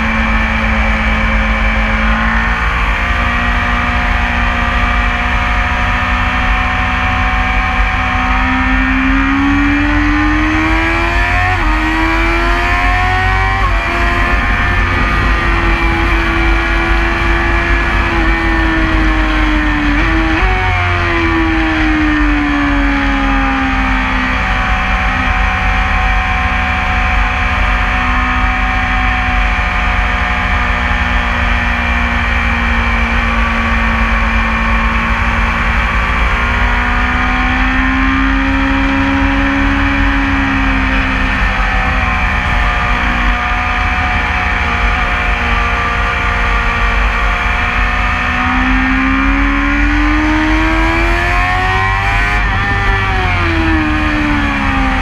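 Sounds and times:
motorcycle engine revving: 0.0s - 55.0s
wind rushing: 11.7s - 21.6s.

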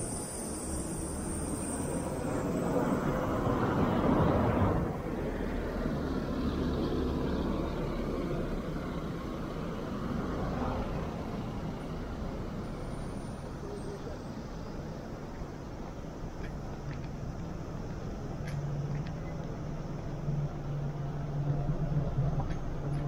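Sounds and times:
traffic noise: 0.0s - 23.0s.

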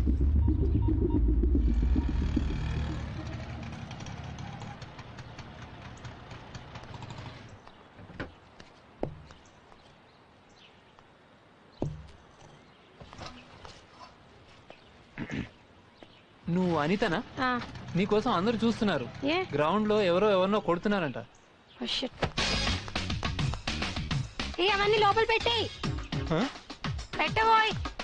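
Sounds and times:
vehicle engine throbbing: 0.0s - 7.5s
short thuds: 11.8s - 13.8s.

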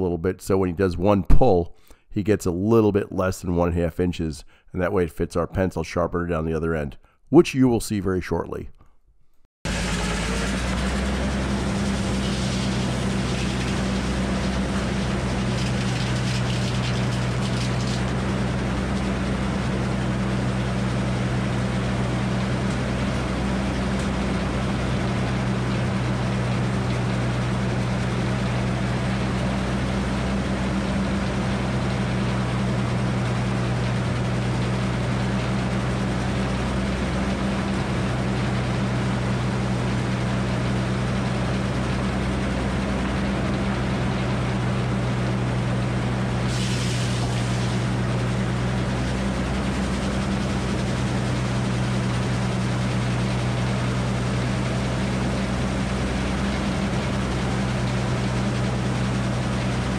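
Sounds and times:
circular saw blade humming: 9.7s - 21.3s.

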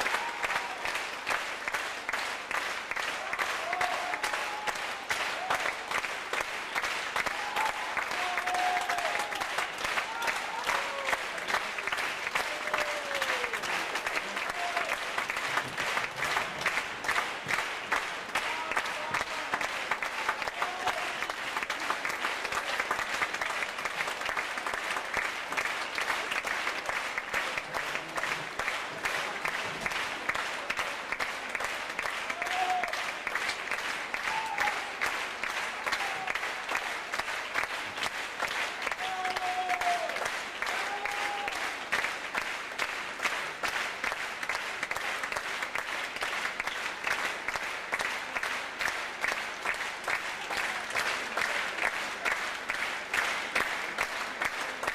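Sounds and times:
audience applauding: 0.0s - 54.9s.

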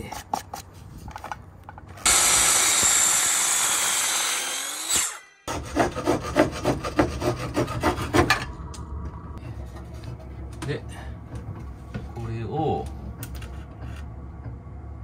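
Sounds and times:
miter saw cutting wood: 2.0s - 8.1s
handsaw sawing wood: 2.0s - 8.3s.

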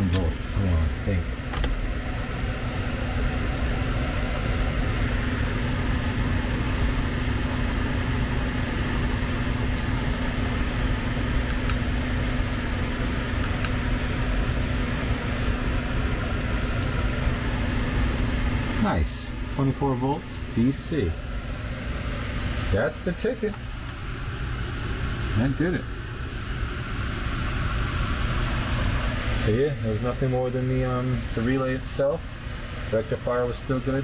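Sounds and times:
blower rushing air: 0.0s - 34.0s
constant hum: 0.0s - 34.0s.

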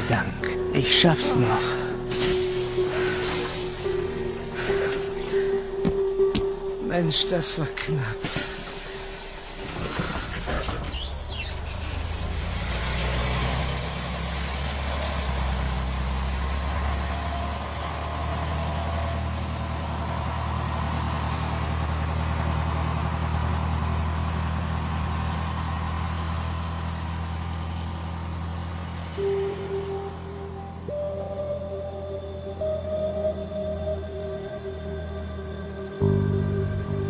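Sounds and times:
bus engine droning: 0.0s - 37.0s
brief high squeal: 9.1s - 12.0s.

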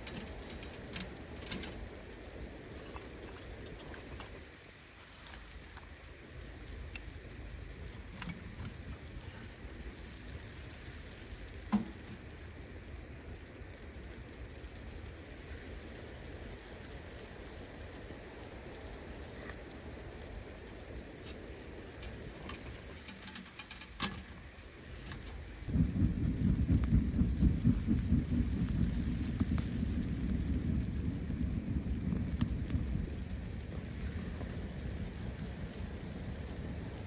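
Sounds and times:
stove door latching clicks: 0.0s - 1.9s, 22.0s - 25.4s
wood laid into stove: 0.0s - 2.0s, 7.9s - 9.5s, 11.7s - 12.3s, 21.9s - 25.6s
steady faint hiss: 0.0s - 37.0s
wood knocking against firebox: 11.7s - 12.3s.

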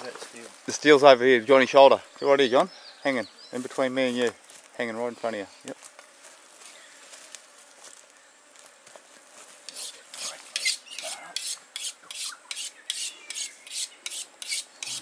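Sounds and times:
knife scraping on sharpening steel: 9.7s - 15.0s.

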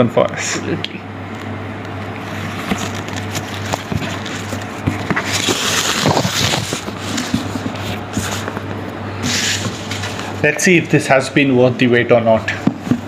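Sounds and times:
steady low hum: 0.0s - 13.0s
ribbon rustling: 2.2s - 10.4s.

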